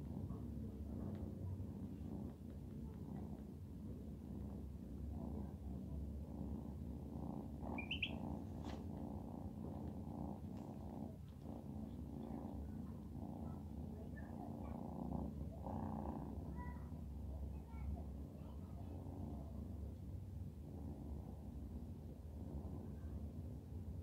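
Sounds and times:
kitten purring: 0.0s - 24.0s
kitten high chirp: 7.7s - 8.3s.

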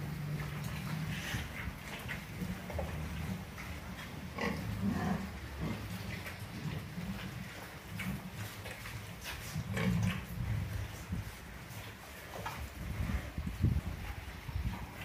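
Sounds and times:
pigs grunting: 0.0s - 11.0s.

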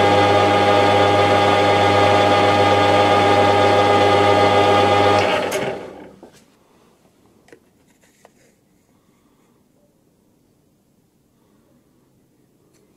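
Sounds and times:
metal lathe droning: 0.0s - 6.1s.

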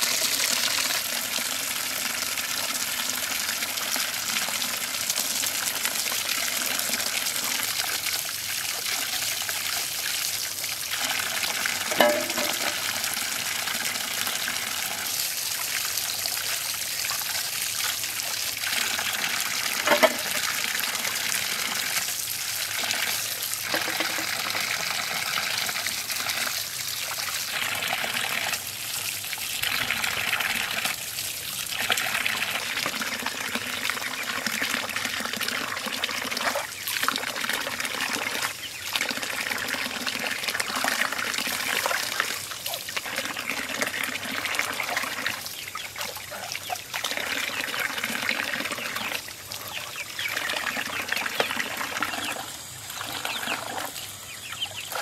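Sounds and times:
tap water splashing over vegetables: 11.8s - 13.1s, 19.7s - 20.6s, 23.1s - 24.6s.

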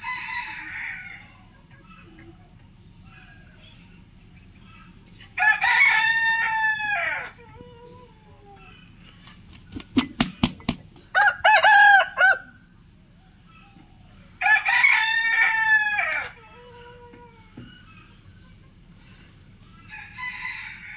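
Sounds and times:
rooster crowing: 0.0s - 1.4s, 5.4s - 7.4s, 11.1s - 12.6s, 14.4s - 16.4s, 19.9s - 20.9s.

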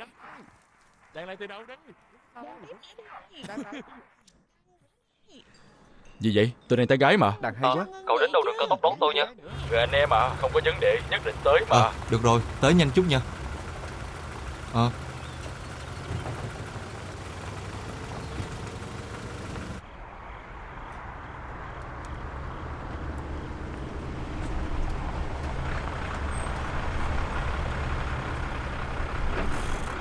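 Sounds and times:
truck engine and road noise: 8.1s - 30.0s
car engine: 9.5s - 30.0s.

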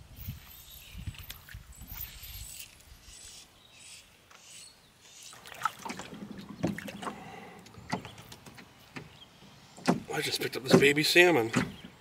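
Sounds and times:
fish splashing at water surface: 5.4s - 7.5s.

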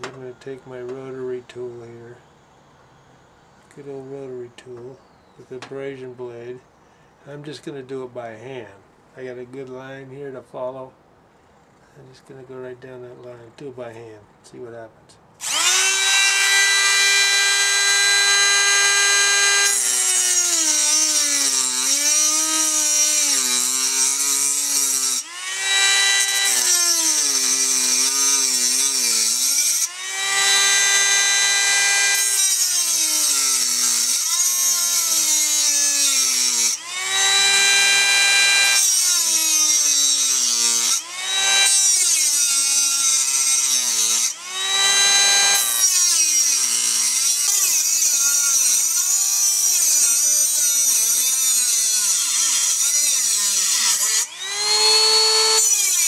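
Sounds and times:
rotary tool grinding metal: 15.4s - 56.0s.

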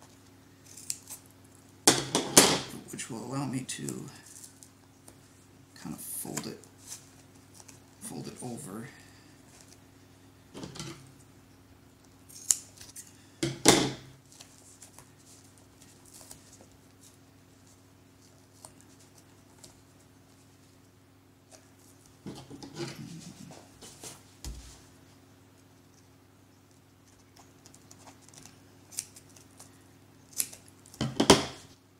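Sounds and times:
vinyl rustling: 13.9s - 20.8s.

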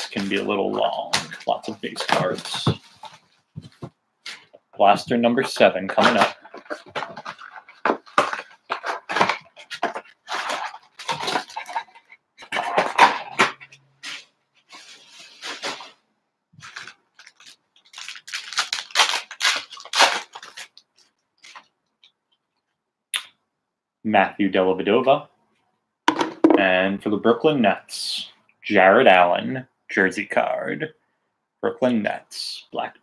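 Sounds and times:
foil packs crinkling: 0.0s - 3.1s, 5.5s - 13.5s, 16.6s - 21.7s.

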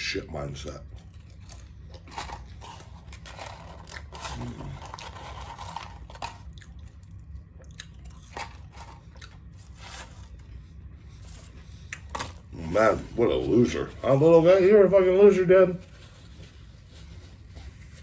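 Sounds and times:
chewing crunchy fries: 0.4s - 13.8s
paper carton crinkling: 1.1s - 6.6s, 15.6s - 18.0s.

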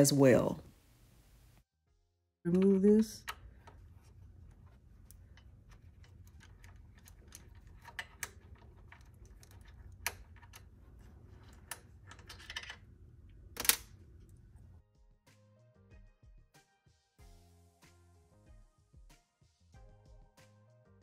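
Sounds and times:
screwdriver and screws clicking: 2.6s - 14.3s.

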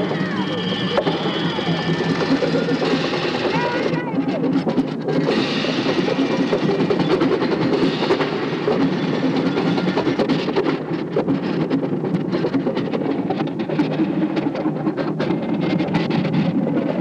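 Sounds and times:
marching band playing: 0.0s - 4.6s.

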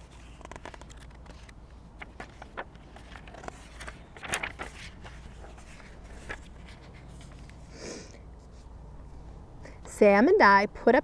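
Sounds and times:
paper pages rustling: 0.0s - 7.7s
low steady hum: 0.0s - 11.0s.

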